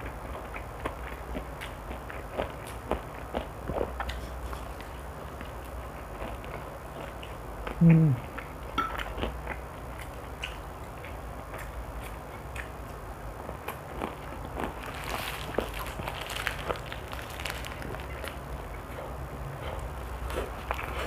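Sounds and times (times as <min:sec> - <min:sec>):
person chewing crispy food: 0:00.0 - 0:21.0.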